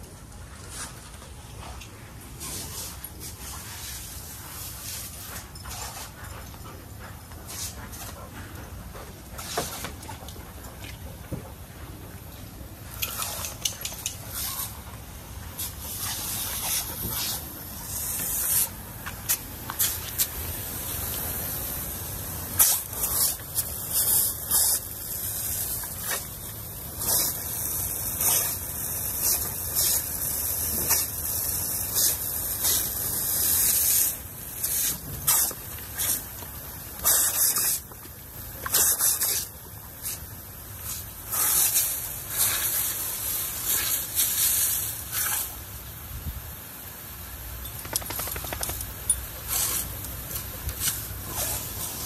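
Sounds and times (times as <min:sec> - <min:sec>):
water jet hissing: 0:15.5 - 0:52.0.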